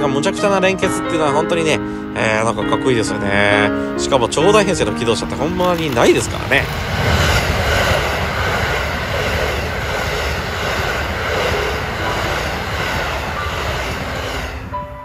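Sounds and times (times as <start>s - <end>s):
diesel train passing at speed: 3.9s - 15.0s.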